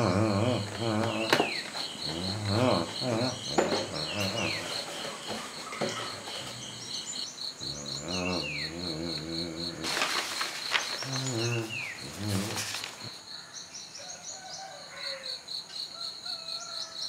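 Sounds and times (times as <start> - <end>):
wavering vocal sounds: 0.0 - 13.2
insects trilling: 0.0 - 17.0.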